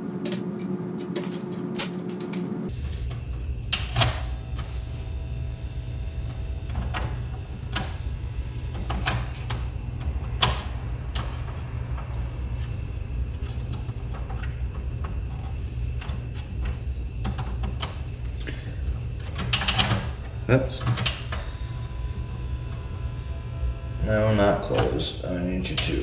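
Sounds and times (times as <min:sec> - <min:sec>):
low hum: 0:00.0 - 0:25.8
faint mechanical whir: 0:00.0 - 0:26.0.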